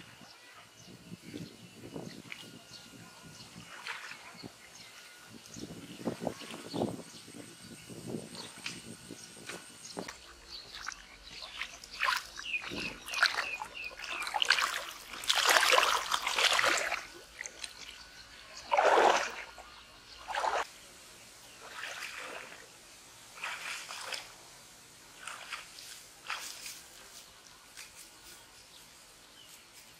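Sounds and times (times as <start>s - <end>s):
water splashing from wading: 10.6s - 18.0s, 18.6s - 19.6s, 20.2s - 20.7s, 21.6s - 22.7s, 23.4s - 24.4s, 25.2s - 26.7s.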